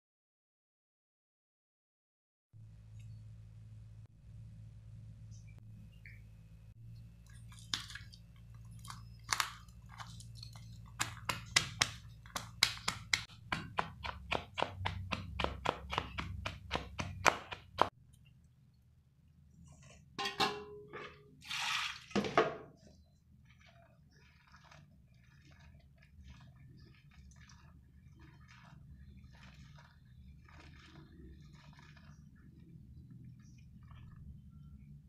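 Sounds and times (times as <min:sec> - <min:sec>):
wet squishes: 0:07.0 - 0:18.4, 0:21.4 - 0:35.0
pestle pounding in a steel bowl: 0:11.0 - 0:17.9.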